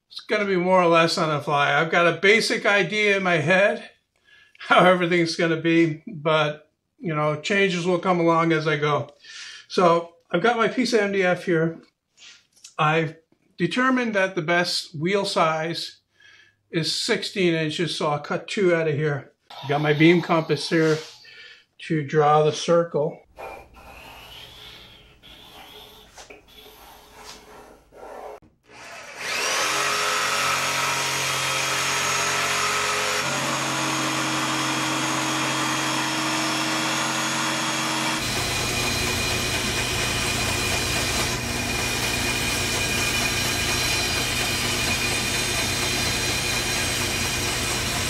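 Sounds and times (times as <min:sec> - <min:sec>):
band saw humming: 0:23.4 - 0:48.0
jigsaw cutting wood board: 0:23.4 - 0:48.0
compass scraping on wood board: 0:25.3 - 0:28.4.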